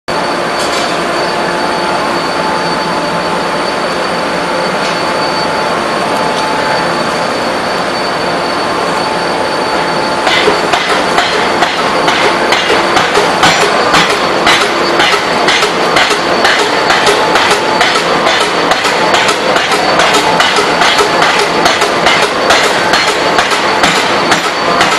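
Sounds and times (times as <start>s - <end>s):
loud machine noise: 0.1s - 24.9s
hammer blows on hot steel: 10.2s - 24.9s.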